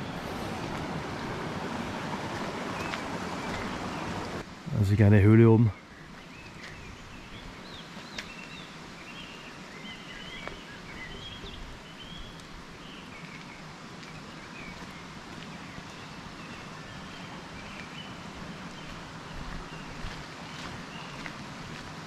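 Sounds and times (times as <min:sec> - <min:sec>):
stream rushing over rocks: 0:00.0 - 0:05.5
songbirds chirping: 0:00.0 - 0:22.0.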